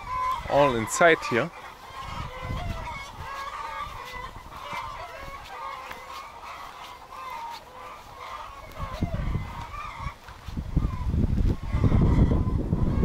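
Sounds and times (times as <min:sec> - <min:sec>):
chickens clucking: 0:00.0 - 0:13.0
wind rumble on microphone: 0:01.9 - 0:06.0, 0:08.1 - 0:13.0.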